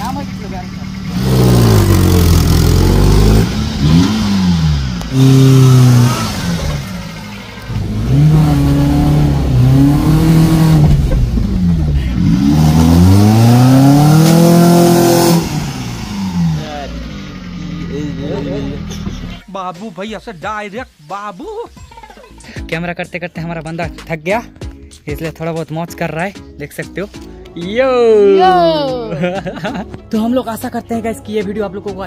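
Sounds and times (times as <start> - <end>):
car engine revving: 0.0 - 19.4.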